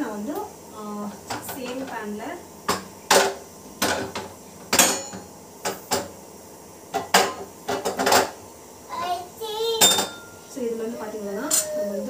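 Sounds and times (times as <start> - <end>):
utensils and cookware clattering: 1.2 - 2.1, 2.7 - 6.1, 6.9 - 8.4, 9.8 - 10.4, 11.3 - 12.0.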